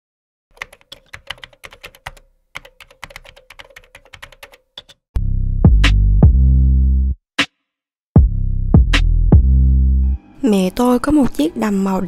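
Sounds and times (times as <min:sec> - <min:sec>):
keyboard typing clicks: 0:00.6 - 0:05.0.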